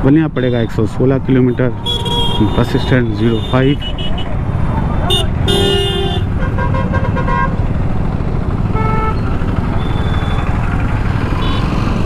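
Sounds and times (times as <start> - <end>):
road and wind rumble: 0.0 - 12.0
vehicle horns honking: 0.4 - 4.3, 5.1 - 7.6, 8.7 - 9.2, 11.4 - 11.7
motorcycle engine running: 7.1 - 12.0.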